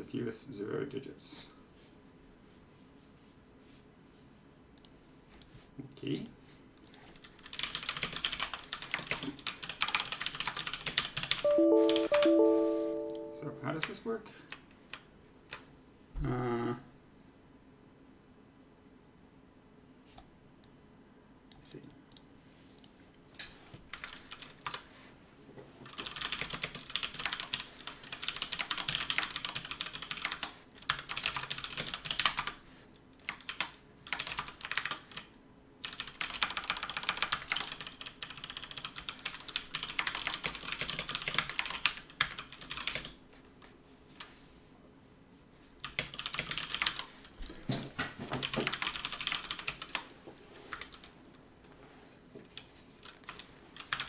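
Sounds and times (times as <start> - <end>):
fast typing on computer keyboard: 7.1 - 12.0, 23.9 - 24.8, 25.8 - 32.6, 33.2 - 43.2, 45.8 - 47.3, 48.3 - 50.1, 50.7 - 51.1, 52.6 - 54.0.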